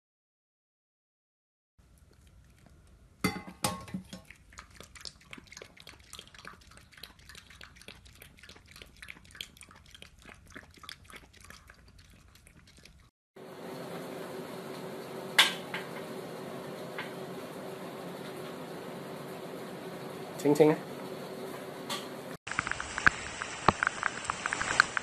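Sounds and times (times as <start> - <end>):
dog eating from metal bowl: 1.8 - 13.1
metal bowl clanking: 3.2 - 4.5.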